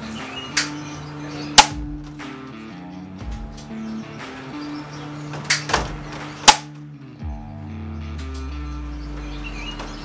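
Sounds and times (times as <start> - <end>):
background music: 0.0 - 10.0
air rifle metallic clacks: 5.4 - 6.9.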